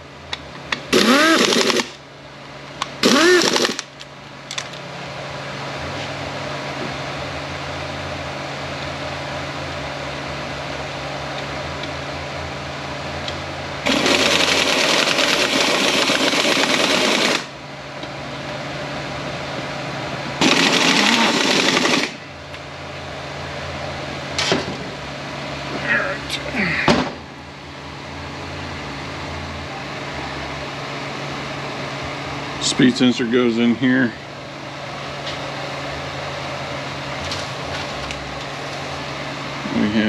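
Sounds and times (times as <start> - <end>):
low shop hum: 0.0 - 40.0
loud power tool bursts: 0.9 - 2.0, 3.0 - 3.9, 13.8 - 17.6, 20.4 - 22.2
power tool whirring: 0.9 - 2.0, 3.0 - 3.9, 13.8 - 17.5, 20.4 - 22.2.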